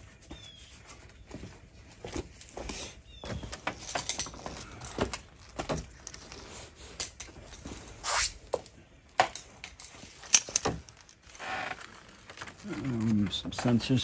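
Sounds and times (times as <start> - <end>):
clothing rustle: 0.0 - 14.0
hand tools clicking and knocking: 3.2 - 6.0, 8.6 - 10.8.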